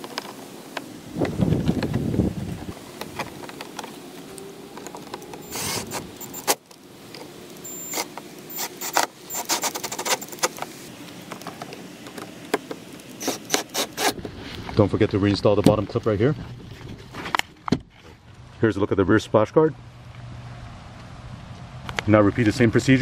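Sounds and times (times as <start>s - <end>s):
cordless drill driving screws: 5.0s - 6.6s, 7.7s - 10.5s, 13.2s - 14.2s.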